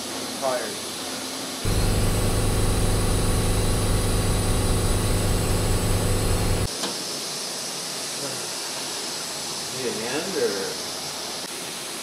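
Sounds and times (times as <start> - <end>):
engine idling: 1.7 - 6.7.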